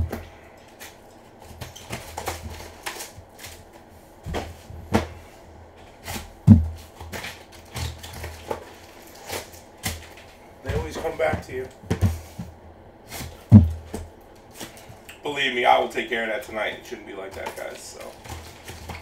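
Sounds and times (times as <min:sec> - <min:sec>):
taps and knocks on cardboard box: 0:06.1 - 0:07.9, 0:13.2 - 0:14.1.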